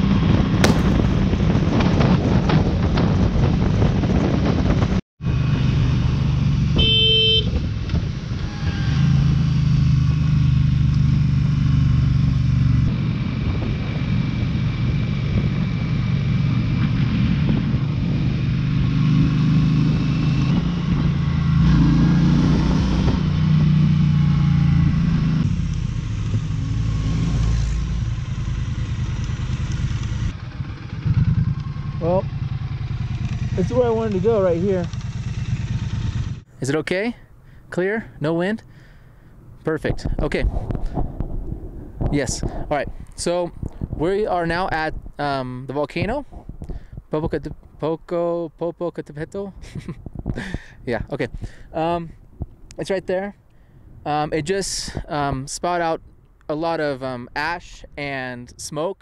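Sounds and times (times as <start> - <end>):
horn toot: 6.8 - 7.7
motorcycle engine running: 27.9 - 36.5.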